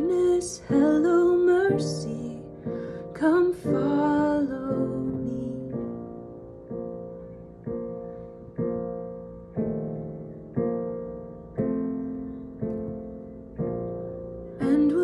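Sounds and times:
woman singing: 0:00.0 - 0:06.0, 0:14.6 - 0:15.0.

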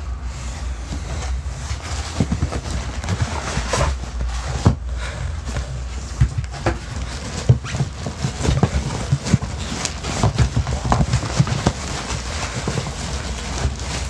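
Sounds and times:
hands rummaging in cardboard box: 0:01.0 - 0:14.0.

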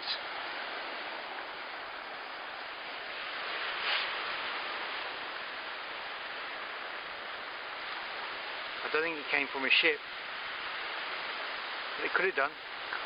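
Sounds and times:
waves washing on shore: 0:00.0 - 0:13.0.

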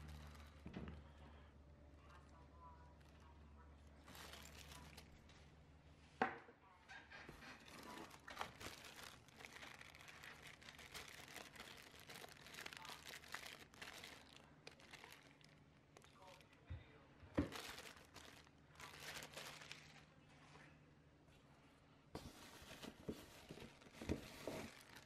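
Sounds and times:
plastic bag crinkling: 0:00.0 - 0:00.7, 0:02.1 - 0:05.3, 0:07.5 - 0:16.6, 0:17.4 - 0:20.2, 0:22.2 - 0:25.0.

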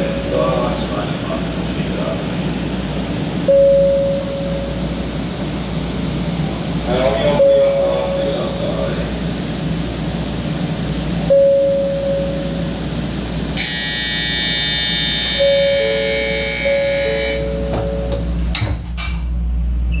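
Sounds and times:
held electronic tone: 0:13.6 - 0:18.2
ringing electronic bell: 0:13.6 - 0:18.3.

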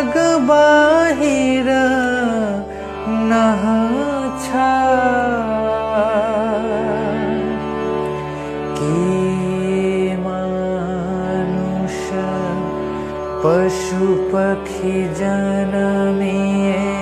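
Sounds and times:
person singing devotional song: 0:00.0 - 0:17.0
steady drone: 0:00.0 - 0:17.0.

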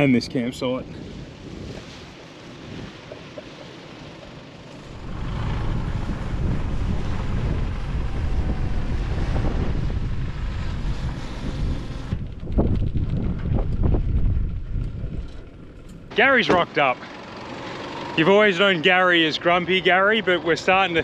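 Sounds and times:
wind buffeting microphone: 0:00.0 - 0:03.3, 0:04.8 - 0:16.1.

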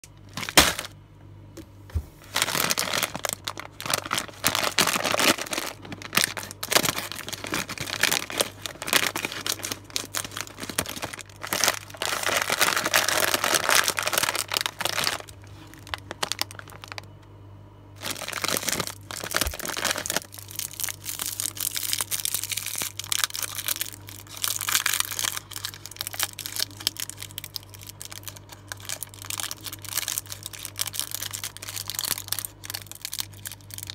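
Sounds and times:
faint low hum: 0:00.0 - 0:33.9
wrappers crinkling and rustling: 0:00.2 - 0:00.9, 0:02.2 - 0:17.1, 0:18.0 - 0:33.9.

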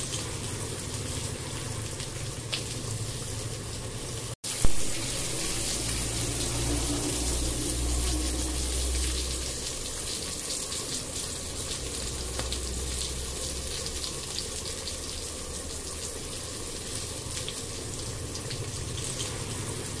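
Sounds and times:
low rumble: 0:04.7 - 0:10.1
curry simmering with crackling pops: 0:09.4 - 0:19.4.

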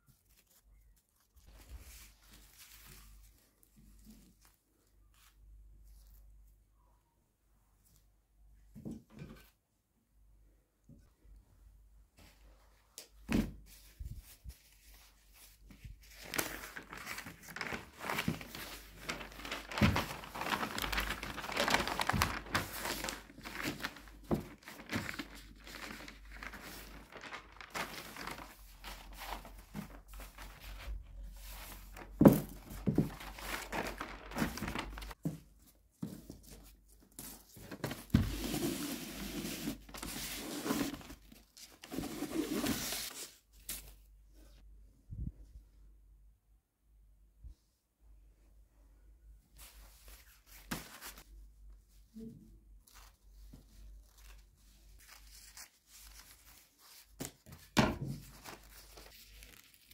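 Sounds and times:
wrapping paper crinkling: 0:00.0 - 0:03.7, 0:16.0 - 0:35.2, 0:53.9 - 0:57.5, 0:58.2 - 0:59.9.

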